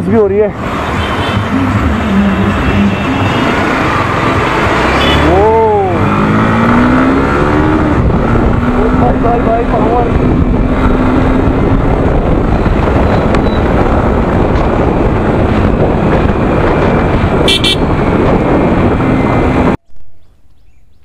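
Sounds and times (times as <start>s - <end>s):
motorcycle engine and tyre noise: 0.0s - 21.0s
wind rush on microphone: 0.5s - 20.3s
vehicle horn toots: 4.9s - 5.4s, 17.4s - 17.9s.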